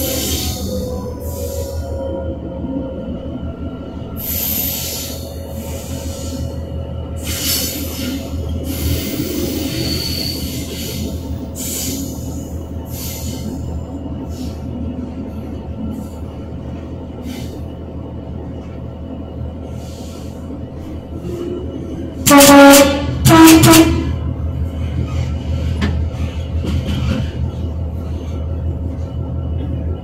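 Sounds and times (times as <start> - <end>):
diesel engine and wheels rumbling: 0.0 - 30.0
two-tone locomotive horn: 22.2 - 24.3.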